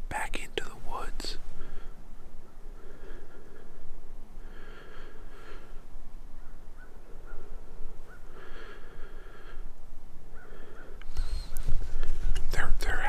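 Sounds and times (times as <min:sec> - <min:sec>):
man breathing hard: 0:01.4 - 0:06.0, 0:07.0 - 0:12.1.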